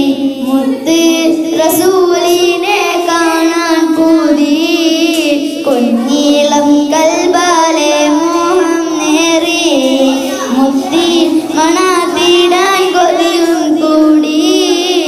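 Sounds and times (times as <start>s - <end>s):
boys singing into microphones: 0.0s - 15.0s.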